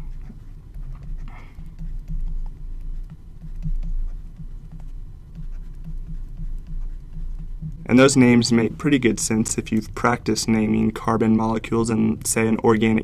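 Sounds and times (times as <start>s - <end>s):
stylus tapping on drawing tablet: 0.0s - 8.1s
low hum: 0.0s - 13.0s.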